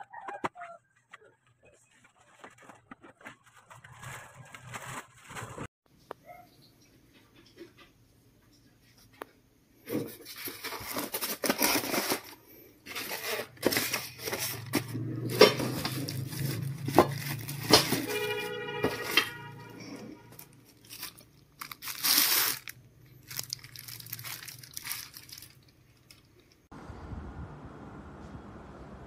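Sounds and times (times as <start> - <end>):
plastic wrapping crinkling: 1.0 - 5.7, 10.2 - 19.3, 20.3 - 26.7.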